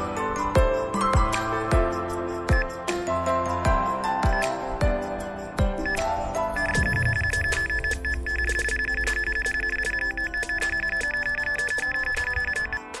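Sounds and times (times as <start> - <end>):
bite alarm fast high beeps: 5.8 - 13.0.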